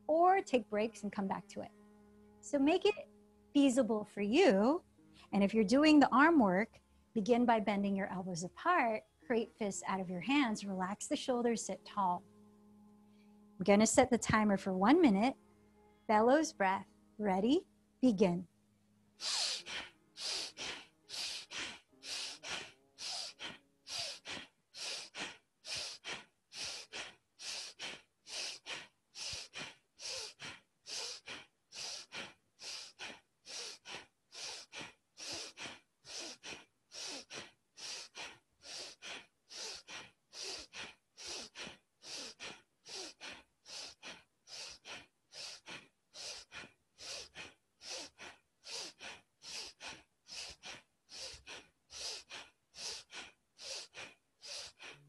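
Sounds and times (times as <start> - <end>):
woman breathing forcefully through nose: 19.2 - 55.0.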